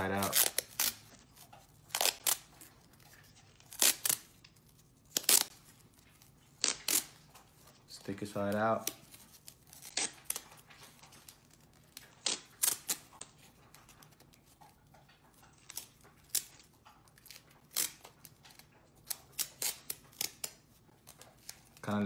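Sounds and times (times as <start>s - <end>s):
tape ripping off roll: 6.5s - 7.3s.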